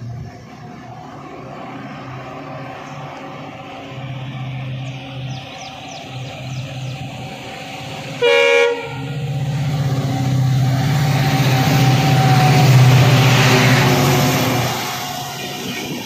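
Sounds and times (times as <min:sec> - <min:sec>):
diesel locomotive engine: 0:00.0 - 0:16.0
train wheel and rail noise: 0:00.0 - 0:16.0
locomotive horn blast: 0:07.9 - 0:14.8.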